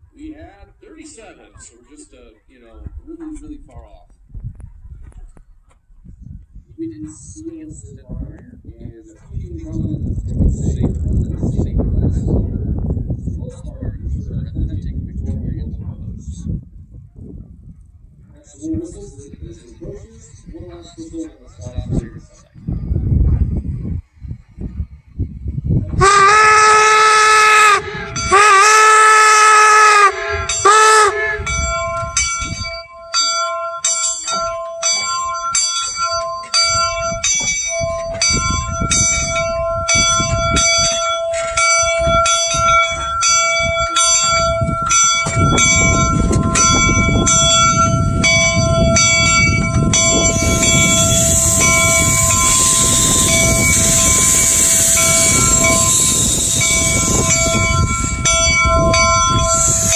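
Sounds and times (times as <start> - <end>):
steam engine rumble: 18.5 - 59.9
steam whistle blasts: 26.0 - 32.8, 45.6 - 48.2, 49.0 - 59.9
locomotive bell ringing: 26.0 - 59.9
loud hiss of steam: 50.0 - 59.9.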